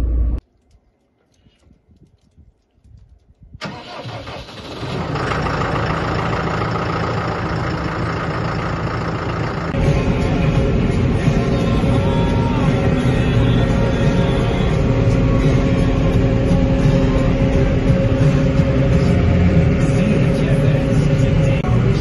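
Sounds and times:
faint clicks: 0.4 - 3.5
tractor diesel engine starting: 3.6 - 22.0.

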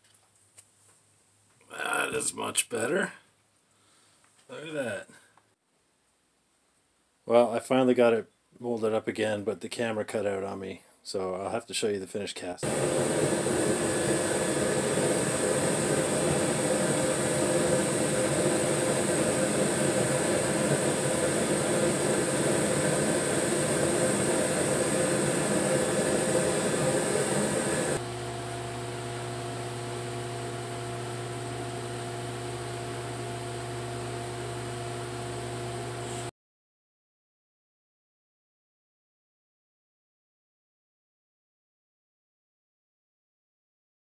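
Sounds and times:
furnace blower rushing hum: 12.6 - 36.3.

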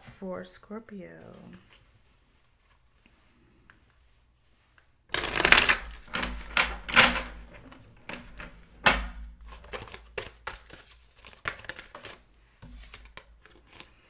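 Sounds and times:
cards being shuffled by hand: 4.7 - 14.0.

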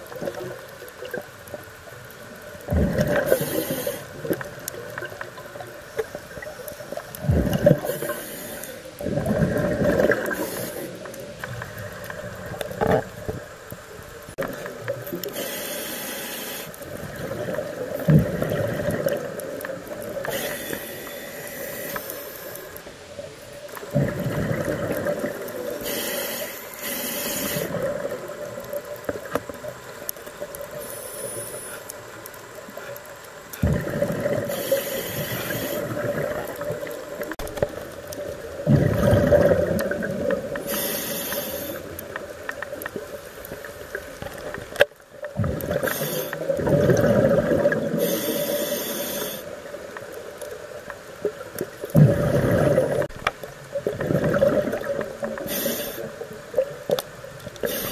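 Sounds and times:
hissing regulator inhalations: 3.0 - 4.4, 7.6 - 9.0, 10.2 - 11.1, 15.2 - 16.9, 20.2 - 22.8, 25.6 - 28.0, 30.7 - 32.0, 34.5 - 36.2, 40.6 - 42.1, 45.7 - 46.6, 47.9 - 49.6, 55.3 - 56.2, 57.6 - 57.9
bubbling exhalations: 38.6 - 40.6, 45.4 - 48.1, 51.9 - 53.1, 53.8 - 55.6.

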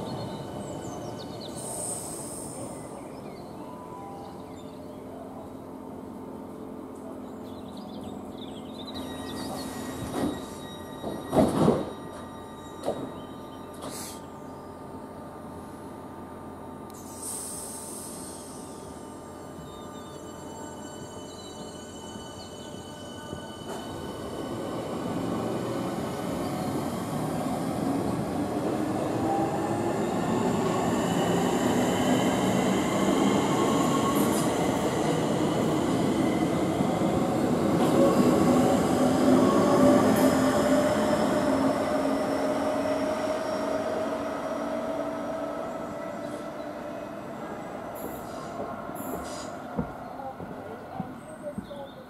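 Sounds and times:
electric train accelerating: 8.4 - 49.8.

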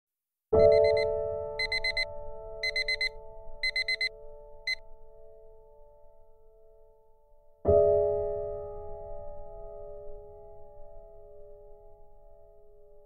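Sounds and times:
electronic alarm beeping: 0.6 - 4.1.

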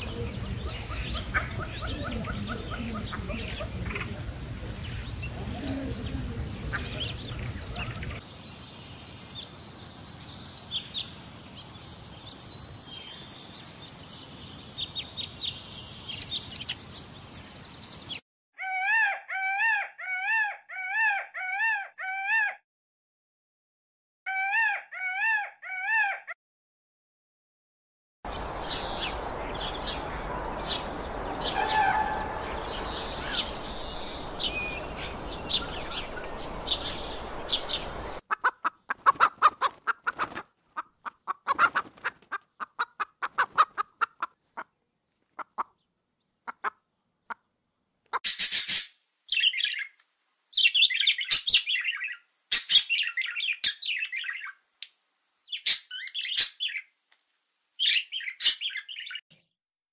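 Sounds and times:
hen clucking: 0.0 - 4.2, 31.4 - 44.7, 45.4 - 45.8, 46.4 - 47.5
small birds chirping: 0.0 - 18.2, 28.3 - 57.0, 57.8 - 59.5
bird squawking: 30.0 - 40.4.

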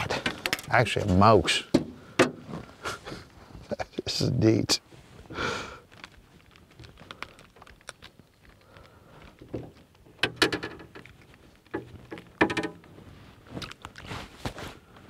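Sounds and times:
fish handling noises: 5.6 - 15.0.

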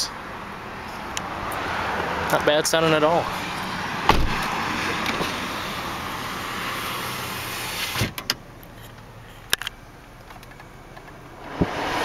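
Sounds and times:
window glass thump and click: 4.1 - 4.5.

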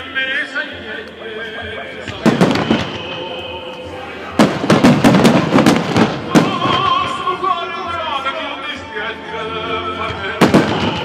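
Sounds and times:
fireworks bursting: 2.0 - 7.5, 10.2 - 11.0.

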